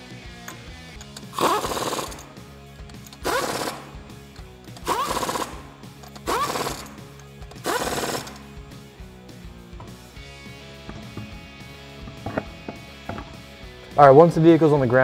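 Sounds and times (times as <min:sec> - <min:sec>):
impact wrench bursts: 0:01.1 - 0:02.4, 0:03.0 - 0:04.0, 0:04.6 - 0:08.5.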